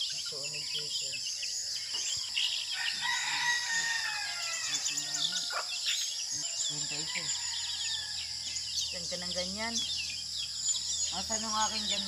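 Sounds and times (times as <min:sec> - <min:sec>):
insects droning: 0:00.0 - 0:12.0
rooster crowing: 0:02.5 - 0:08.5.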